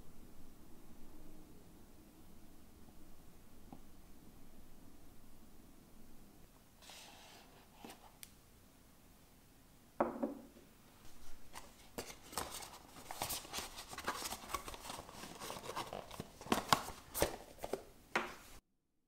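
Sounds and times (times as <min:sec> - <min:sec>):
mug knocking on table: 0:10.0 - 0:10.5
packaging crinkling: 0:11.6 - 0:17.8.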